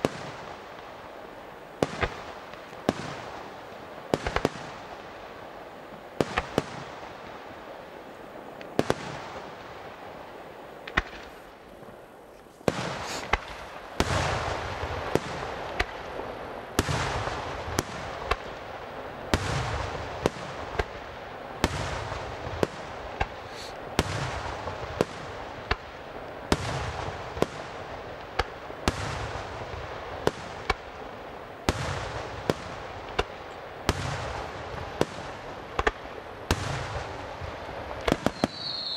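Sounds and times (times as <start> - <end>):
dense firework crackle: 0.0 - 38.9
firework shells bursting: 12.6 - 14.2, 22.7 - 24.7, 38.0 - 38.9.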